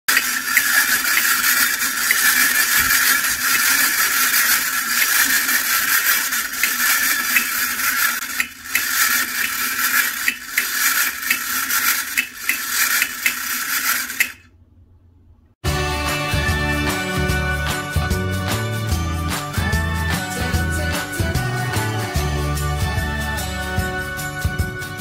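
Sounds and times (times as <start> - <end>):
toy mechanism whirring: 0.0 - 14.5.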